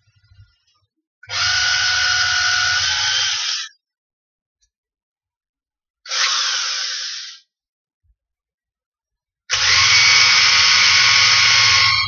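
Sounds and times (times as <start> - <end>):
electric drill whining: 1.3 - 3.8, 6.1 - 7.5, 9.5 - 12.0.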